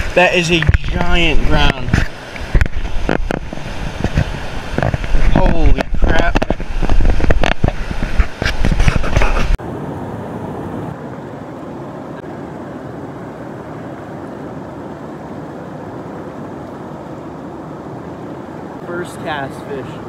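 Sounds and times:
wind buffeting microphone: 0.0s - 9.6s
steady rushing noise: 0.0s - 20.0s.

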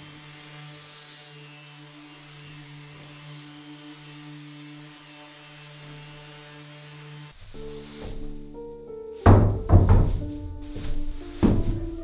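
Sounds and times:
orbital sander on wood: 0.0s - 7.4s.

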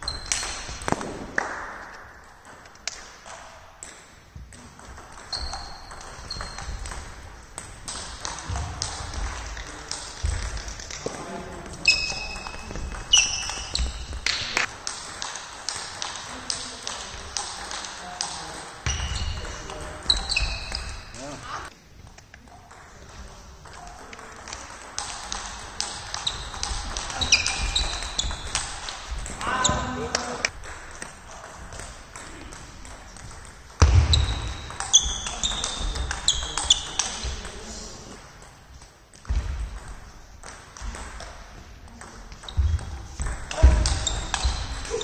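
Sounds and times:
high squeaks: 0.0s - 0.8s, 5.2s - 7.0s, 11.8s - 14.7s, 18.8s - 21.6s, 26.0s - 30.1s, 34.1s - 37.2s.

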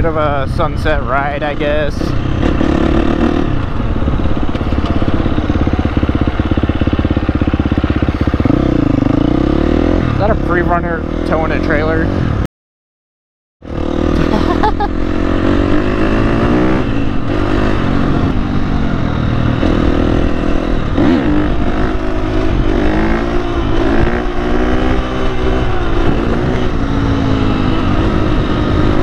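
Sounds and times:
dirt bike engine revving: 1.0s - 12.4s, 13.6s - 29.0s.

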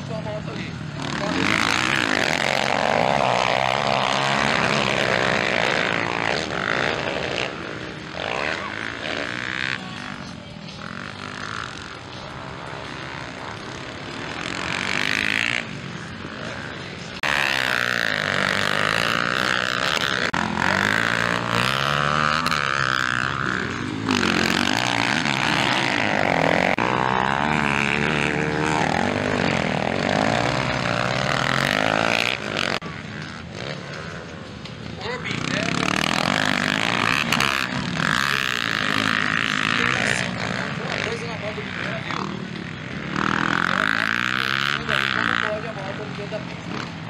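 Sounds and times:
dirt bike engines revving: 0.0s - 47.0s.

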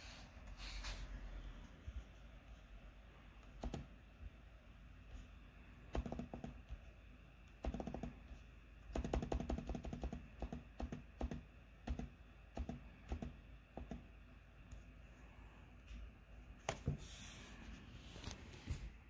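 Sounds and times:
typing on laptop keyboard: 3.5s - 3.9s, 5.9s - 6.8s, 7.5s - 14.1s.

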